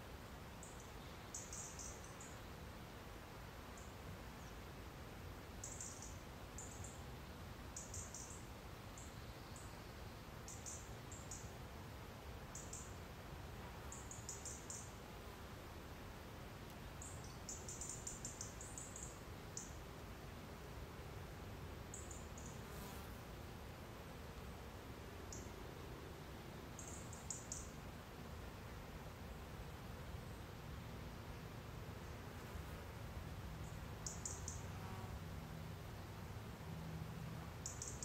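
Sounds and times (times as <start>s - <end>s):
steady background hiss: 0.0s - 38.0s
faint bird chirps: 0.5s - 2.6s, 3.8s - 4.6s, 5.6s - 7.1s, 7.7s - 11.6s, 12.5s - 13.0s, 13.9s - 15.0s, 16.9s - 19.8s, 21.9s - 22.6s, 25.3s - 25.6s, 26.7s - 27.8s, 33.6s - 34.7s, 37.6s - 38.0s.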